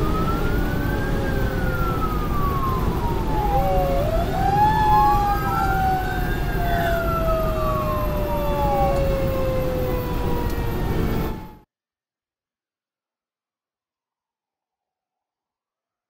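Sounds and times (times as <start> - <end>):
engine and road rumble: 0.0 - 11.6
fire engine siren wailing: 0.0 - 11.7.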